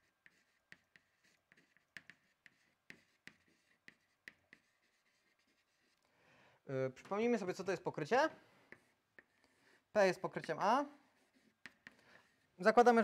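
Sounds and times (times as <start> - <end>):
chalk tapping and scratching: 0.0 - 6.0, 8.6 - 13.0.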